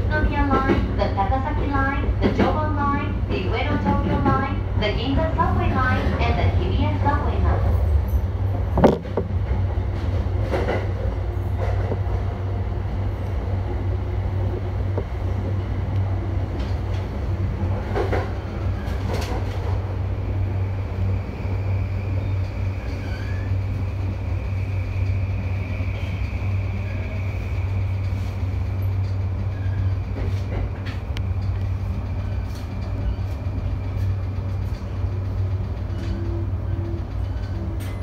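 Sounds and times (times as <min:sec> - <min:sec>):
rail clicks: 0:00.0 - 0:21.1, 0:22.2 - 0:38.0
train rumble and hum: 0:00.0 - 0:38.0.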